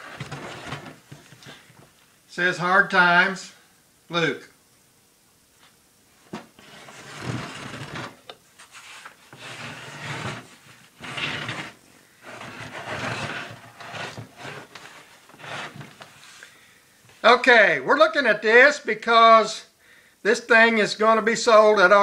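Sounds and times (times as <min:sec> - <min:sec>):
wooden cabinet scraping on table: 0:00.0 - 0:01.2, 0:06.3 - 0:16.3.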